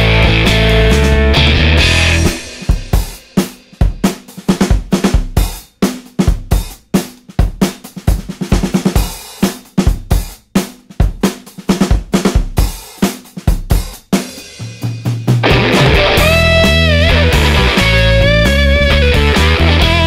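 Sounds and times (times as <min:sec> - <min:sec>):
rock drum beat: 0:00.0 - 0:20.0
low bass note: 0:15.4 - 0:18.4.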